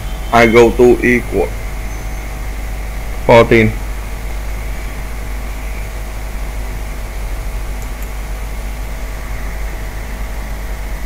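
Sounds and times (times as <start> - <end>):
faint steady tones: 0.0 - 11.0
low hum: 0.0 - 11.0
steady background hiss: 0.0 - 11.0.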